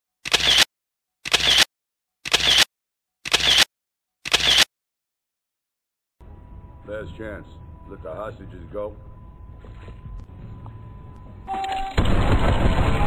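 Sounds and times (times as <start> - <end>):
camera shutter double click: 0.2 - 4.7.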